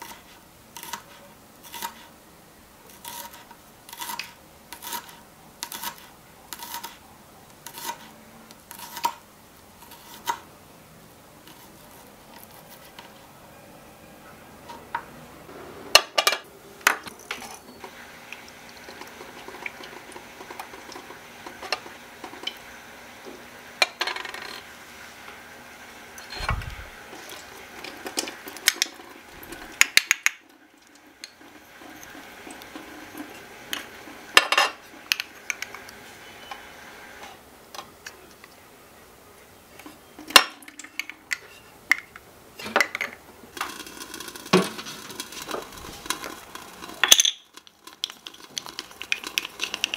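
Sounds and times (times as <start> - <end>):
miniature kitchenware clinking: 15.9 - 17.8, 40.3 - 49.9.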